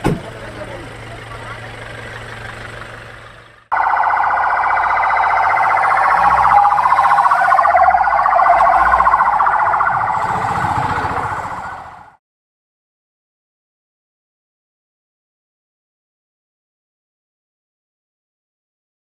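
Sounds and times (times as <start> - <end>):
ambulance siren warbling: 3.7 - 12.2.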